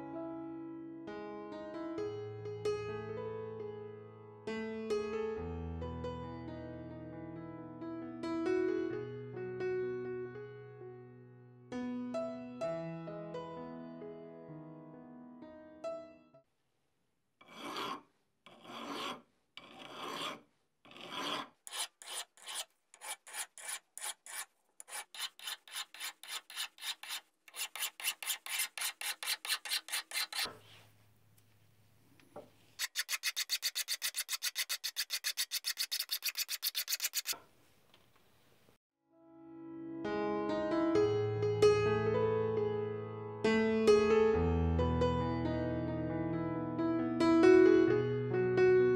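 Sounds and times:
knife blade rasping on abrasive board: 17.4s - 30.6s, 32.8s - 37.4s.

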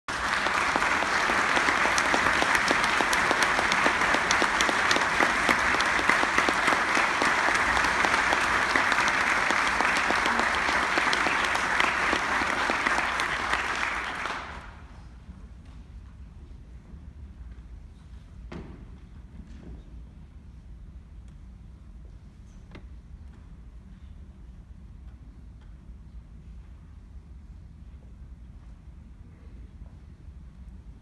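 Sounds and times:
audience applauding: 0.1s - 14.9s.

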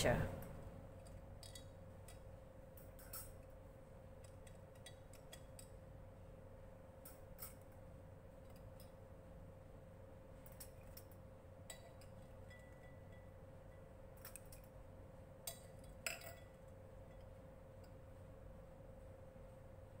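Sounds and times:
steady faint hum: 0.0s - 20.0s
metal tongs clicking against glass: 2.8s - 3.5s, 4.2s - 5.8s, 7.0s - 7.8s, 10.4s - 14.7s, 15.4s - 18.0s.

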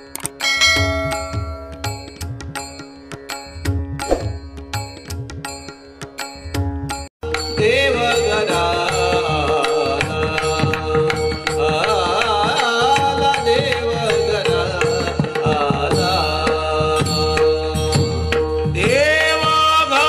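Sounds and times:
drum strokes: 4.0s - 4.8s.

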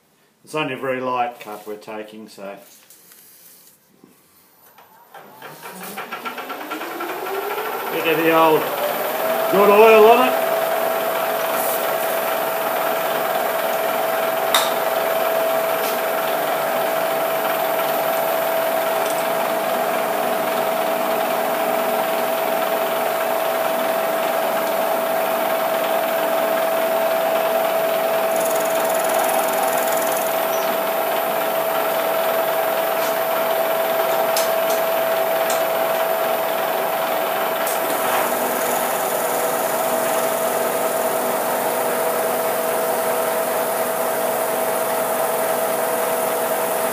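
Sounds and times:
milling machine cutter whine: 5.2s - 46.9s
sharp click: 14.5s - 14.8s.

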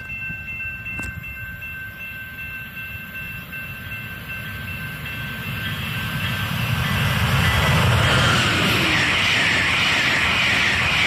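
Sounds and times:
high ringing tones: 0.0s - 8.0s
train rumble approaching: 0.0s - 11.0s.

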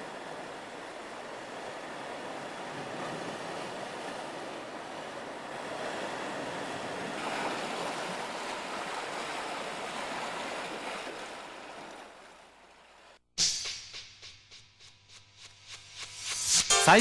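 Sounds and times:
waves breaking on rocks: 0.0s - 12.3s.

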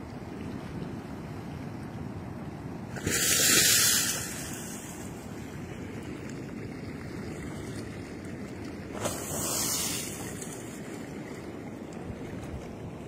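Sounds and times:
ocean surf over rocks: 1.3s - 6.9s, 8.8s - 12.2s
hiss of rushing water: 2.9s - 5.1s, 9.0s - 10.5s.

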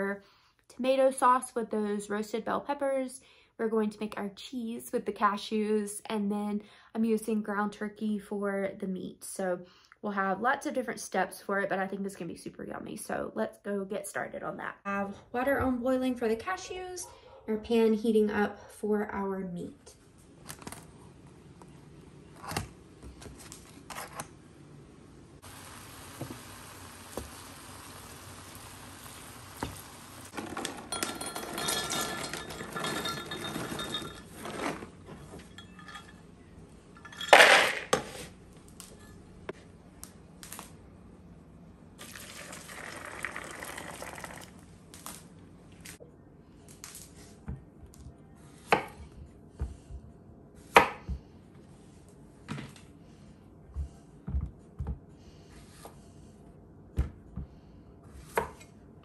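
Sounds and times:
dishes and utensils clinking: 30.4s - 36.3s, 36.9s - 38.0s
water pouring into a bowl: 42.0s - 44.6s.

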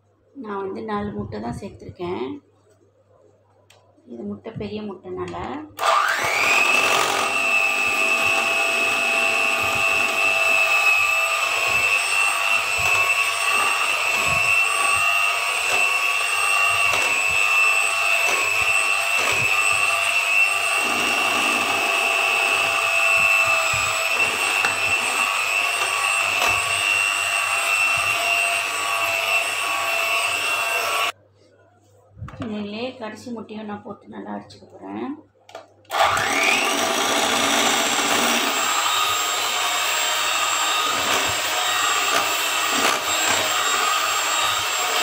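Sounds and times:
electric hand mixer whining: 5.8s - 31.1s, 35.9s - 45.0s.

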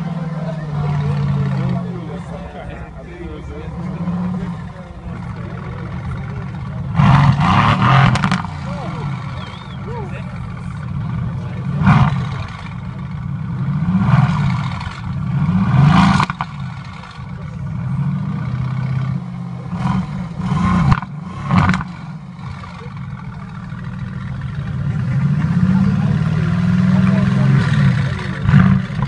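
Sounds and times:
car engine idling and revving: 0.0s - 29.0s.

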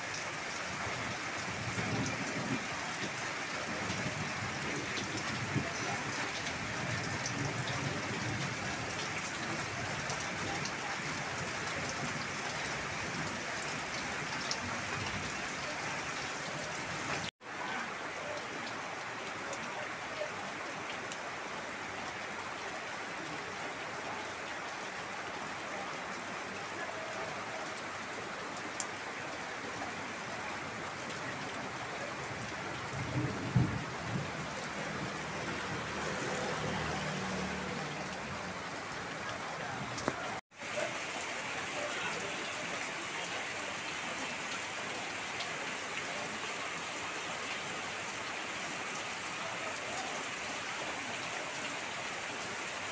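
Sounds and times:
heavy rain splashing: 0.0s - 52.9s.

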